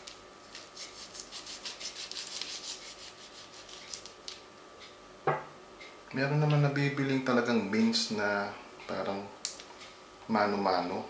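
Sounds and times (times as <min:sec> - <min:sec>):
knife sawing through plastic: 0:00.8 - 0:04.0.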